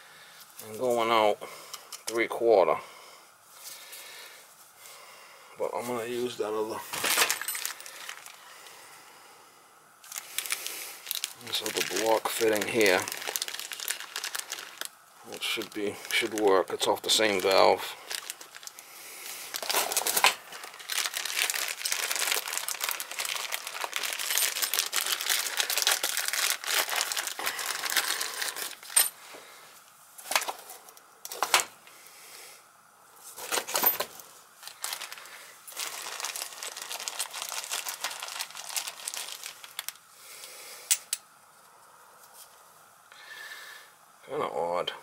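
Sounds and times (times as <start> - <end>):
plastic bag crinkling: 6.8 - 8.7, 10.0 - 29.1, 33.4 - 40.1.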